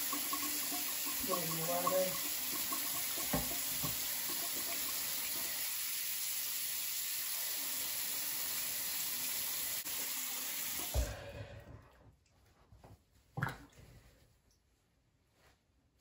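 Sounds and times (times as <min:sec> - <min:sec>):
faucet running into basin: 0:00.0 - 0:11.2.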